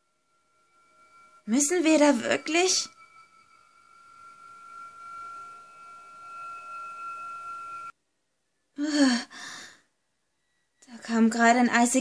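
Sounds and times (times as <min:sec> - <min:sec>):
steady electronic tone: 0:00.0 - 0:08.0
fainter higher tone: 0:00.0 - 0:12.0.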